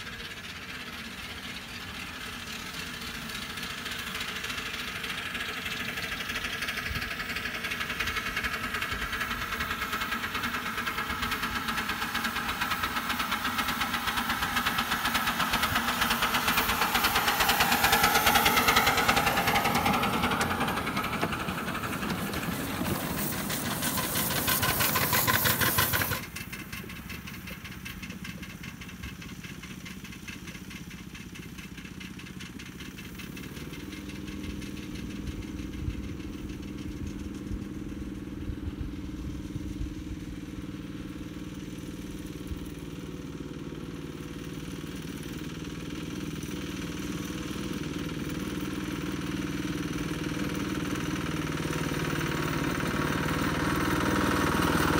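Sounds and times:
distant train running: 0.0 - 39.1
steam locomotive exhaust beats: 0.0 - 54.9.

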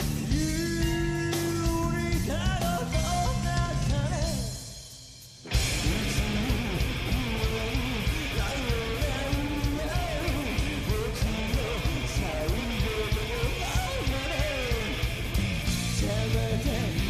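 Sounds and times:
live rock band playing: 0.0 - 17.0
person singing: 0.1 - 4.6, 5.5 - 17.0.

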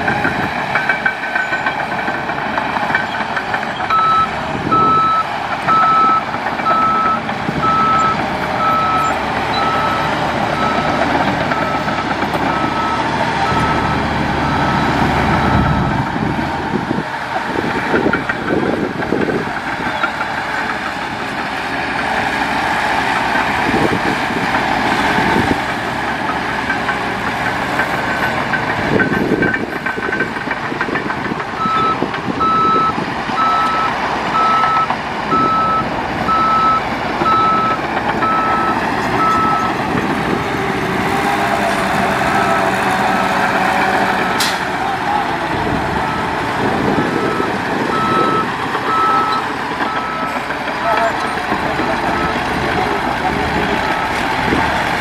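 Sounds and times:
heavy machinery engine running: 0.0 - 55.0
reversing alarm beeping: 3.9 - 15.9, 31.6 - 39.8, 46.0 - 52.5.

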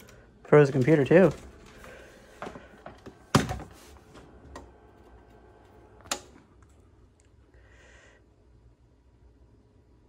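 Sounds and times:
hands handling computer hardware: 0.0 - 6.3.

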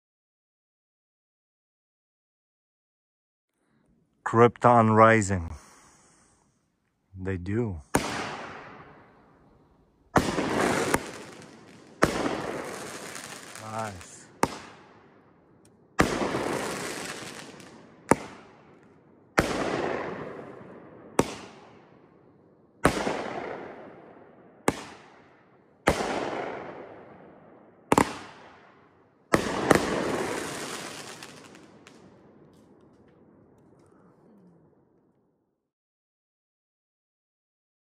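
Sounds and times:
firework crackle: 10.1 - 14.8, 16.0 - 18.3, 29.4 - 33.0
loud aerial firework break: 10.2 - 14.7.

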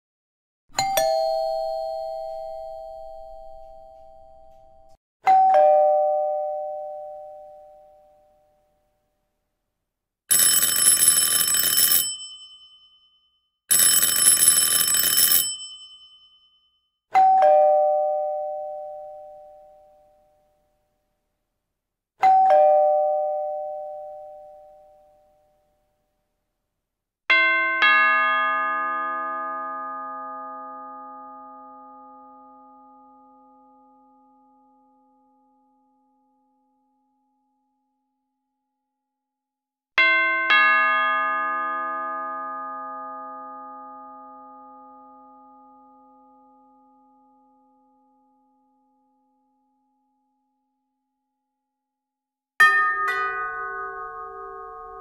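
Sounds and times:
single doorbell chime: 0.8 - 8.5, 10.5 - 20.3, 22.2 - 25.3
multi-note doorbell chime: 0.8 - 8.7, 10.3 - 20.6, 22.2 - 25.5, 27.3 - 37.1, 40.0 - 49.9, 52.6 - 55.0.

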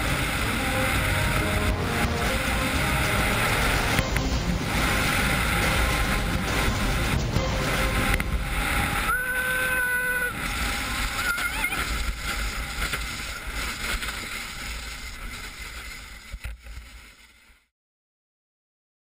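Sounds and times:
steady high tone: 0.0 - 12.0
sled runners rushing over ice: 0.0 - 17.7.

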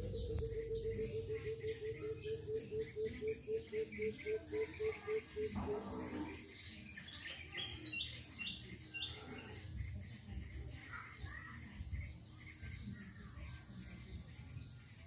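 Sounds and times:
bird chirps: 0.0 - 5.6
insect drone: 0.0 - 6.5.

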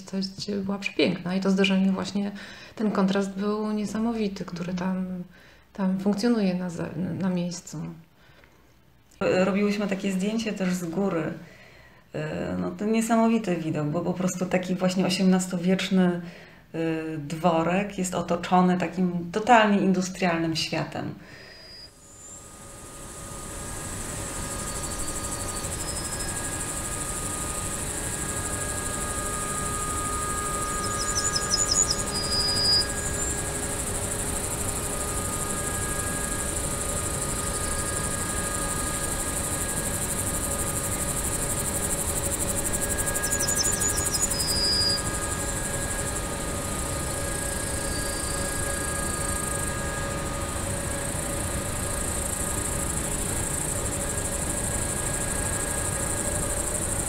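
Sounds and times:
high-pitched hiss: 21.4 - 57.0
faint steady tones: 21.6 - 57.0
low drone: 21.6 - 57.0.

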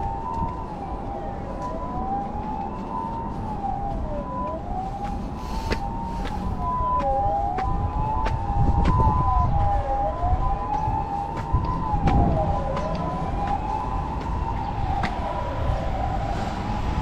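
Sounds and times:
city traffic: 0.0 - 17.0
two-tone siren: 0.0 - 17.0
wailing siren: 0.0 - 17.0.

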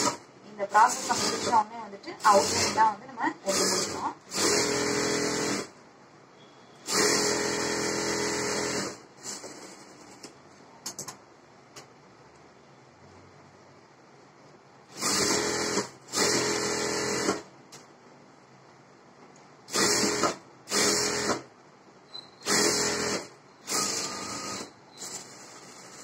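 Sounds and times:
sewing machine stitching: 3.5 - 5.7, 6.9 - 10.2, 14.9 - 17.5, 19.7 - 21.4, 22.4 - 26.0.

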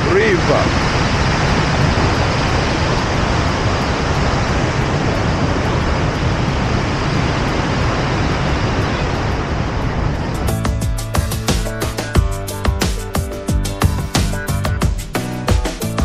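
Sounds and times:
water rushing over weir: 0.0 - 10.6.

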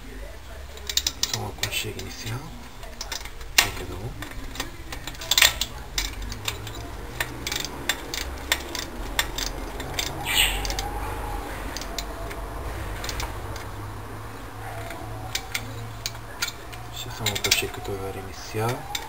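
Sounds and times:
metallic wrench clicks: 0.8 - 2.1, 2.9 - 10.9, 11.7 - 12.4.

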